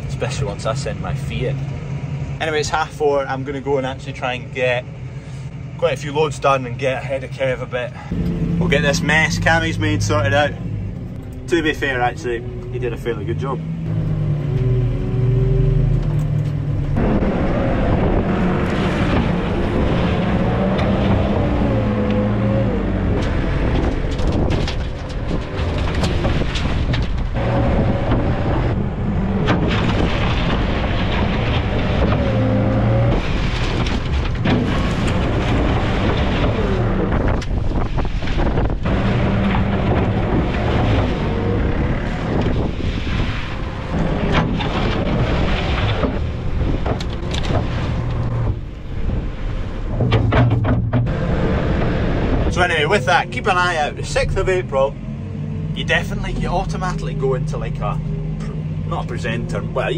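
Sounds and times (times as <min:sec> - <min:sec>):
tractor diesel engine under load: 0:00.0 - 0:59.9
wind on microphone: 0:16.8 - 0:52.5
loader bucket knocks: 0:49.8 - 0:51.3.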